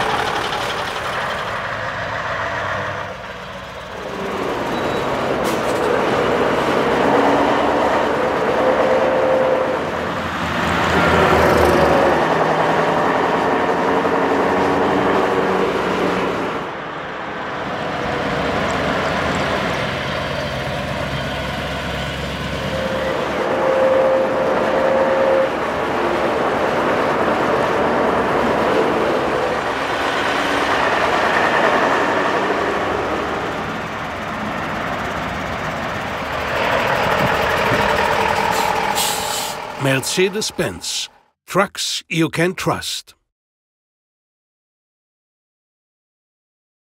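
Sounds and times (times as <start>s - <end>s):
truck diesel engine accelerating: 0.0s - 8.9s, 25.6s - 40.8s.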